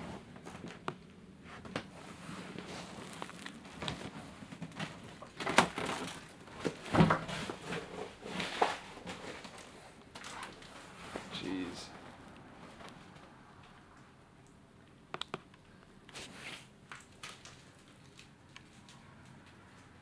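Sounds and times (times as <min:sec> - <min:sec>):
footsteps crunching on debris: 0:02.5 - 0:05.1.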